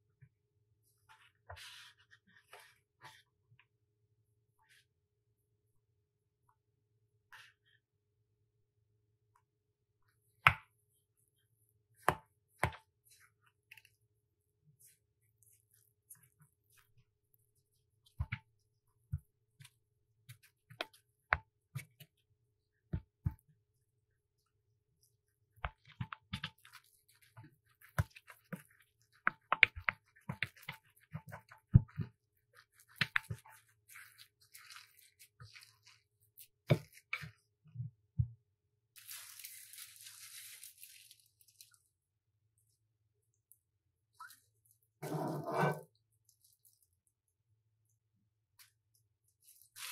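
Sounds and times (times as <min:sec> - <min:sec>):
soft squishing: 0:00.8 - 0:03.8, 0:09.4 - 0:38.2, 0:39.0 - 0:49.9
spoon scraping while stirring: 0:45.0 - 0:45.9.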